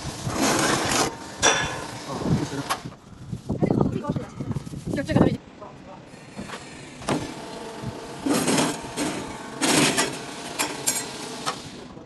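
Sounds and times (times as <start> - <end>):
cutter motor hum: 6.9 - 11.9.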